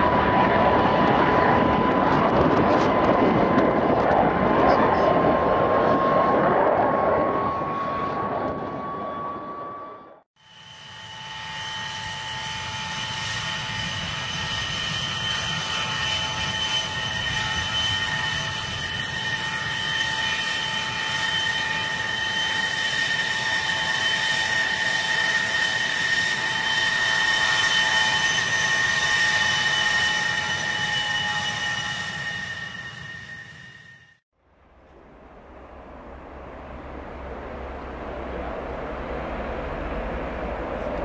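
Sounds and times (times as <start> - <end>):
jet engines high whine: 0.0 - 41.0.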